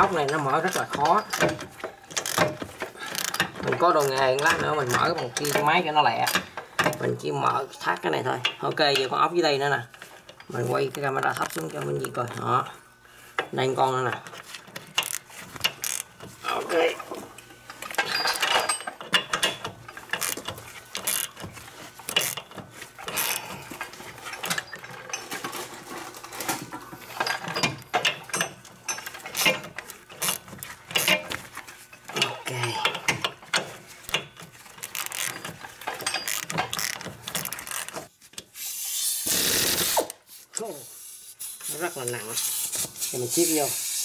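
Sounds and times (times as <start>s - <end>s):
power ratchet running: 0.0s - 6.4s, 15.0s - 16.1s, 19.5s - 24.6s, 39.2s - 40.1s
hand ratchet clicking: 0.0s - 7.0s, 15.0s - 16.1s, 17.8s - 24.8s, 27.2s - 31.4s, 34.8s - 38.0s.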